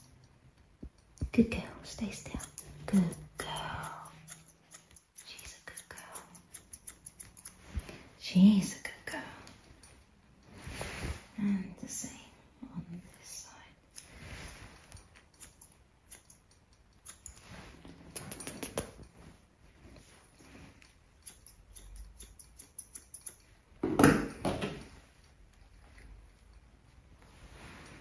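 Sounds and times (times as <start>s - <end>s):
scissors snipping hair: 0.0s - 7.9s, 13.8s - 17.4s, 18.0s - 19.2s, 20.8s - 23.5s.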